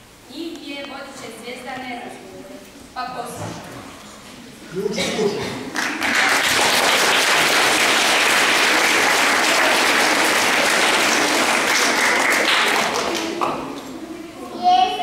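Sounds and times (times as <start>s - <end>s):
audience applauding: 5.7s - 13.9s.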